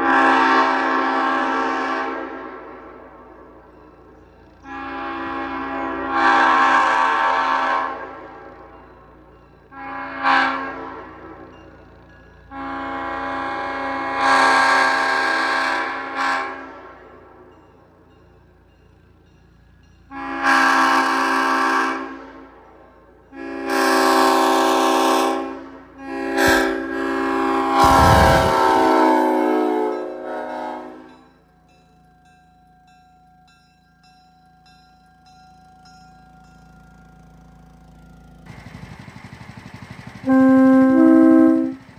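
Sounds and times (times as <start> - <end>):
train horn chord: 0.0 - 3.6, 4.6 - 8.7, 9.7 - 11.6, 12.5 - 17.5, 20.1 - 31.3, 40.2 - 41.9
faint high ringing tones: 31.1 - 38.5.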